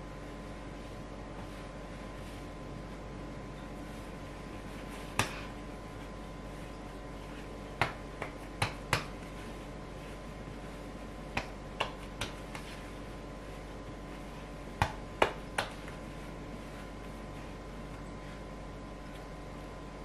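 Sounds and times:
steady background hum: 0.0s - 20.0s
dough slapping on wooden board: 5.0s - 5.6s, 7.4s - 9.9s, 11.1s - 13.0s, 14.1s - 16.1s.

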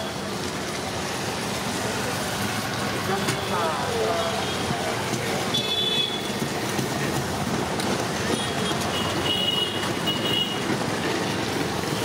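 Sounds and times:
busy food stall background: 0.0s - 9.3s.

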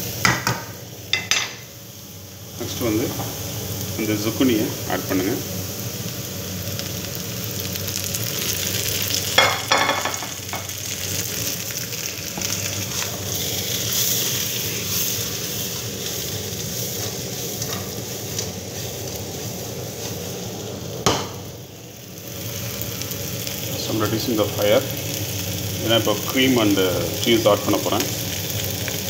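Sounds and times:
vegetables sizzling in oil: 0.0s - 29.0s
stirring and tossing in pan: 11.2s - 20.8s.

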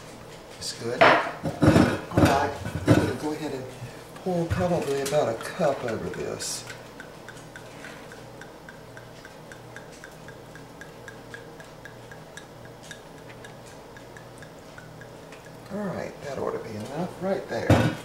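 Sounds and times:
steady low hum: 0.0s - 18.0s
faint even ticking: 5.7s - 16.3s.

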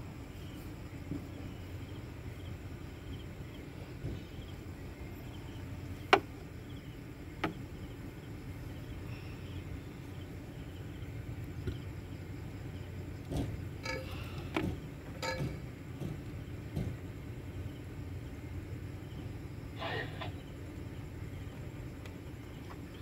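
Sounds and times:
steady low hum: 0.0s - 23.0s
faint high chirping: 0.3s - 13.2s.

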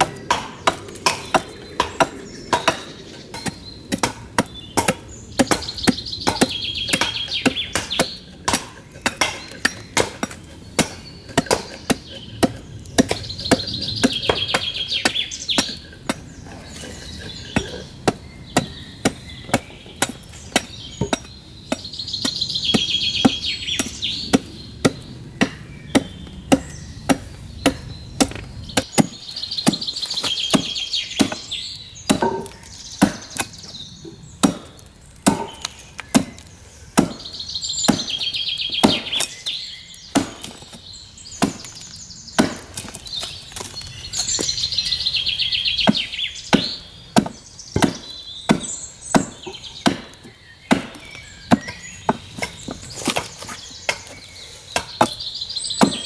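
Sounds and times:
adze chopping wood: 0.0s - 33.7s, 34.4s - 44.6s, 45.8s - 55.2s, 55.8s - 56.0s.

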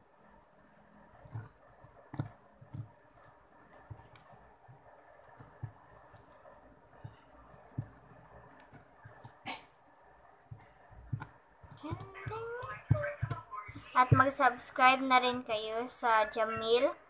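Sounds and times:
slime clicking and tapping: 1.2s - 9.5s, 10.5s - 14.7s.

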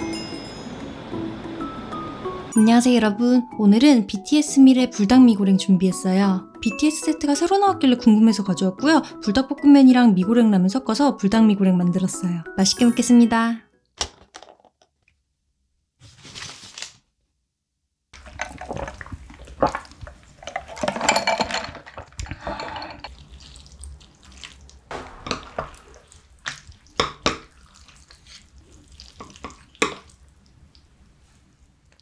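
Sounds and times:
paper bag rustling: 16.0s - 17.1s
water pouring and splashing: 18.2s - 22.3s, 23.0s - 30.9s
wet stirring of noodles: 18.2s - 32.0s.

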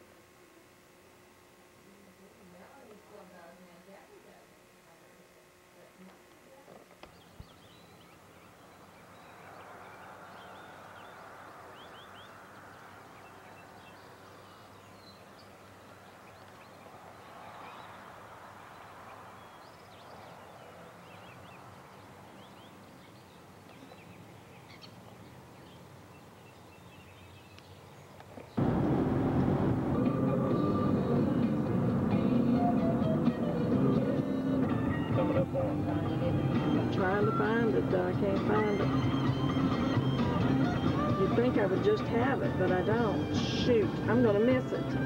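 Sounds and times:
small birds chirping: 6.9s - 28.6s
loud vehicle noise: 28.6s - 45.0s.

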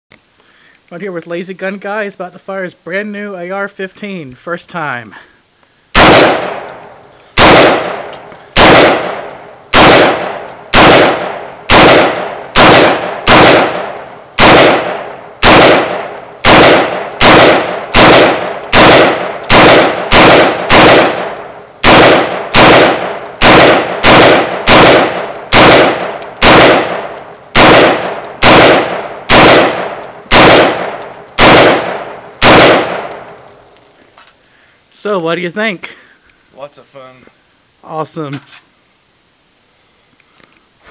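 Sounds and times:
rifle shots with echo: 6.0s - 6.8s, 7.4s - 33.4s.

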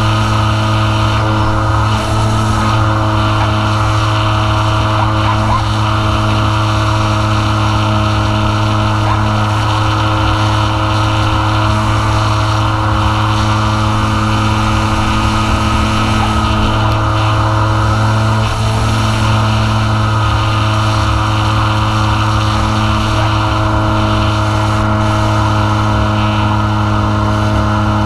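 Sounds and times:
model plane motor buzzing: 0.0s - 28.0s
rushing air: 0.0s - 28.0s.

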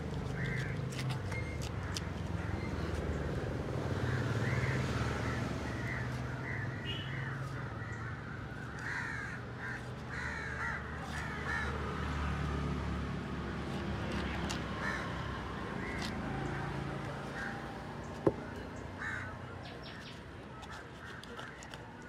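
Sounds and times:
crows cawing: 3.9s - 11.8s, 14.8s - 16.1s, 17.3s - 17.6s, 19.0s - 19.4s.

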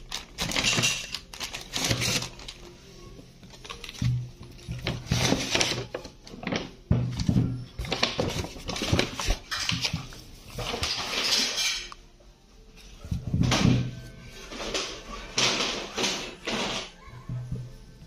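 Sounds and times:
plastic packaging crinkling: 0.0s - 6.8s, 7.7s - 11.6s.

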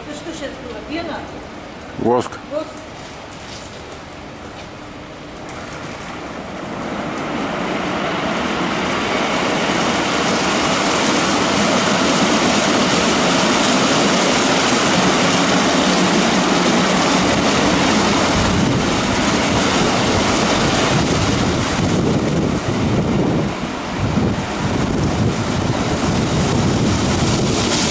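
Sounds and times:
car wash brushes rushing: 25.1s - 27.9s.

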